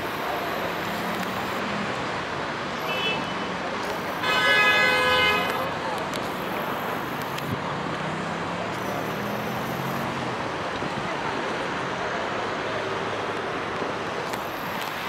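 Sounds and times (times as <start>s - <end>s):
city traffic noise: 0.0s - 15.0s
vehicle engine hum: 5.4s - 15.0s.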